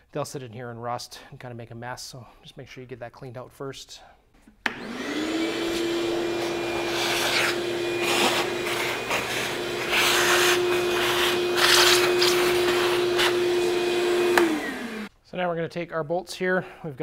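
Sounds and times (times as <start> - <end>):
shop vac motor whine: 4.7 - 15.1.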